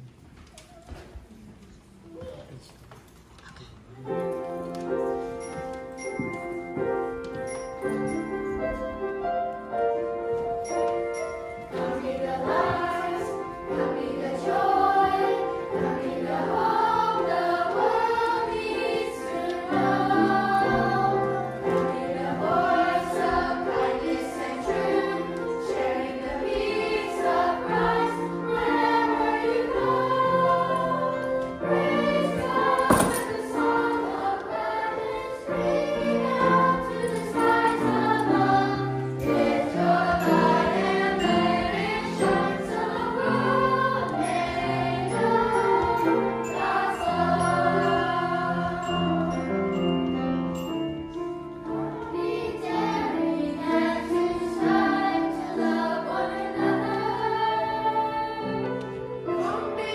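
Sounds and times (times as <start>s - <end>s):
children's choir singing: 4.0s - 59.9s
instrumental accompaniment: 4.1s - 59.9s.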